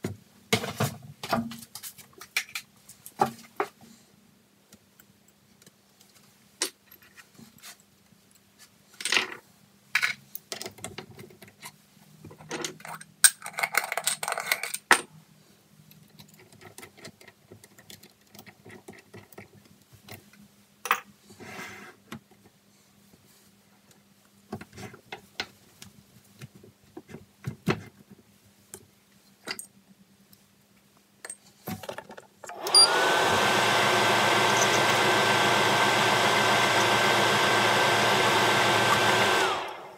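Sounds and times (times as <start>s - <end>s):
lathe motor whining: 32.5s - 39.9s.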